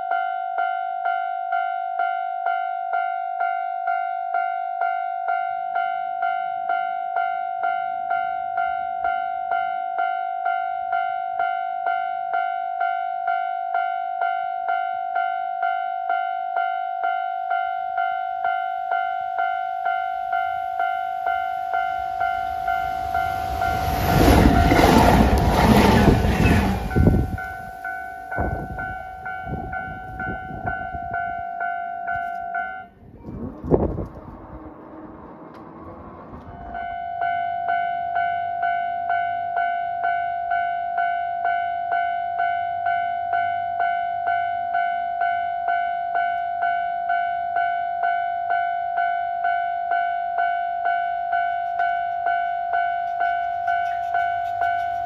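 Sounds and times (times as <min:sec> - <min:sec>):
level crossing warning bell: 0:00.0 - 0:33.0, 0:36.6 - 0:55.0
train rumble: 0:20.1 - 0:31.4, 0:32.3 - 0:37.4, 0:51.0 - 0:55.0.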